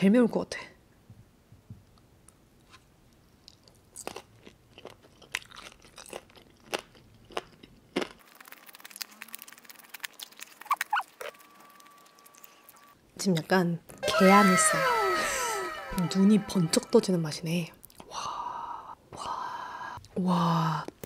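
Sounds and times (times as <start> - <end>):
person chewing crunchy food: 3.4 - 12.9.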